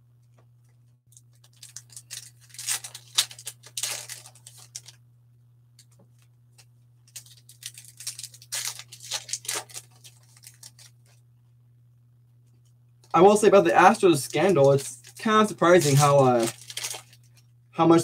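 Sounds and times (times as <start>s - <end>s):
foil wrapper tearing and crinkling: 1.2s - 5.0s, 7.1s - 11.2s, 14.0s - 17.4s.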